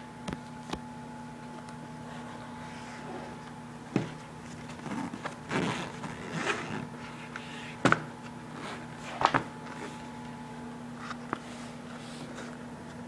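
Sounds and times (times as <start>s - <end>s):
zipper: 4.8s - 6.9s.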